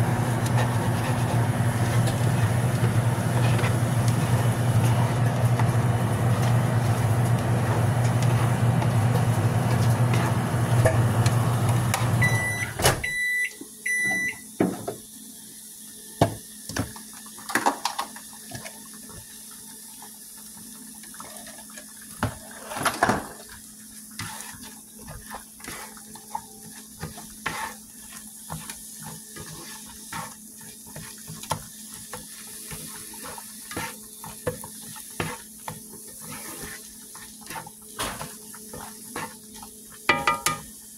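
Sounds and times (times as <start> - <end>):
machine hum: 0.0 - 12.7
short electronic beeps: 12.2 - 14.4
plastic spatula scraping pan: 27.0 - 27.8.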